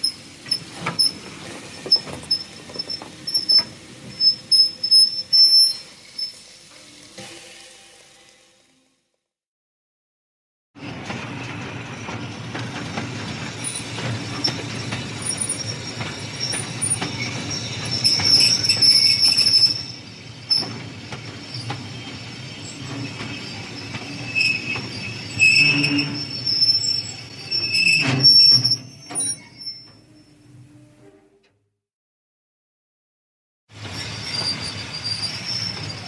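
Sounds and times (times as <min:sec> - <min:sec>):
brake squeal: 0:00.0 - 0:07.0, 0:13.6 - 0:31.4, 0:33.8 - 0:36.0
train rumble: 0:00.0 - 0:07.5, 0:10.8 - 0:27.6, 0:33.7 - 0:36.0.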